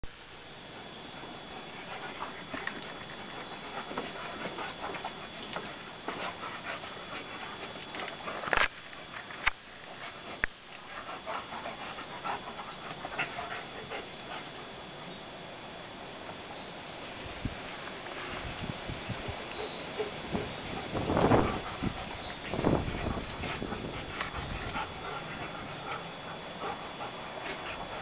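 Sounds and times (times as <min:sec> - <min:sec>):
dogs panting: 0:00.7 - 0:15.0, 0:19.2 - 0:28.0
paws scuffling on brick: 0:01.1 - 0:15.0, 0:17.2 - 0:28.0.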